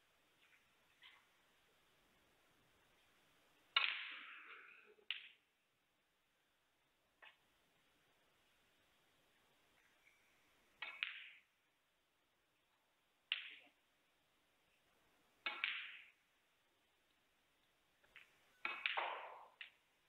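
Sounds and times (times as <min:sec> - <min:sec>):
snooker balls clicking: 0:03.7 - 0:05.5, 0:10.6 - 0:11.6, 0:13.3 - 0:13.8, 0:15.3 - 0:16.4, 0:17.0 - 0:20.0.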